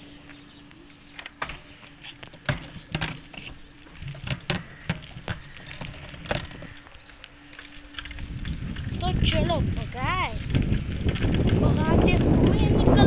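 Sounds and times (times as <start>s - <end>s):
bicycle clicks and rattles: 0.0s - 13.0s
low rumble: 3.8s - 13.0s.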